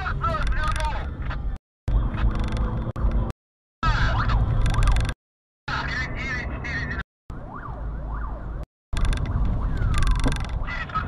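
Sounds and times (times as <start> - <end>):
engine and road rumble: 0.0 - 11.0
police siren wailing: 7.3 - 10.2.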